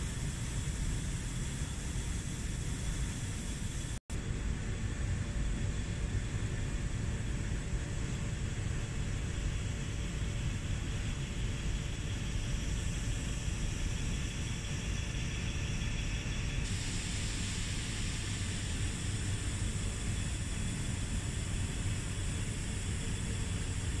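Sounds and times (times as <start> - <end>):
low machinery rumble and hum: 0.0 - 24.0
higher hiss: 16.6 - 24.0.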